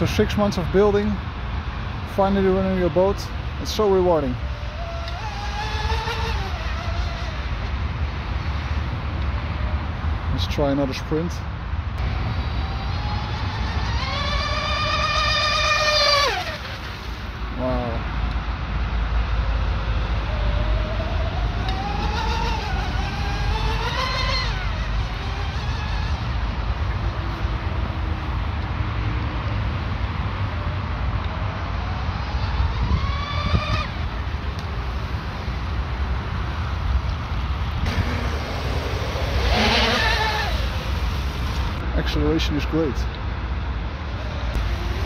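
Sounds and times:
low steady rumble: 0.0s - 45.0s
electric motors whining: 4.4s - 7.8s, 12.0s - 17.5s, 19.6s - 28.0s, 37.6s - 41.8s, 44.0s - 45.0s.

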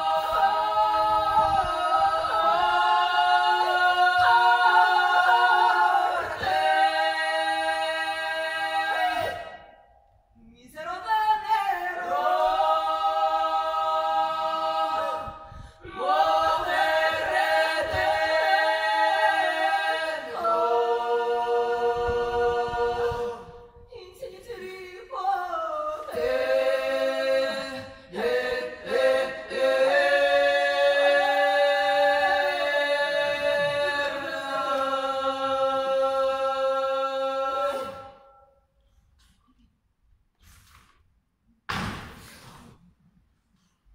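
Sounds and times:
women singing in harmony: 0.0s - 9.8s, 10.6s - 38.4s
singers breathing: 15.3s - 16.0s.

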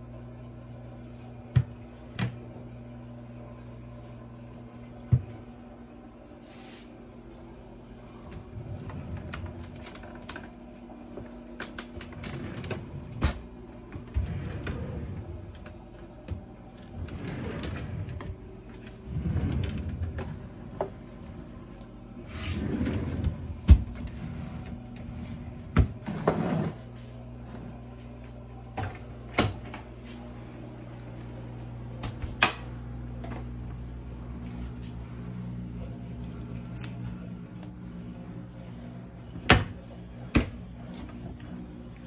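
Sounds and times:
faint low hum: 0.0s - 42.0s
drawers sliding: 8.2s - 10.5s, 11.8s - 27.8s.

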